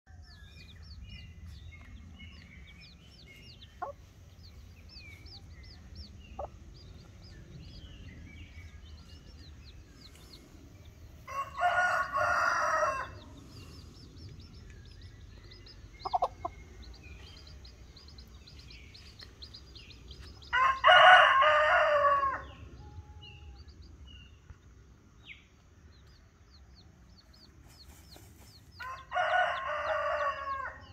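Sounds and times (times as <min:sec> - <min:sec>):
chicks peeping: 0:00.2 - 0:30.9
rooster crowing: 0:11.3 - 0:13.3, 0:20.5 - 0:23.3, 0:28.8 - 0:30.9.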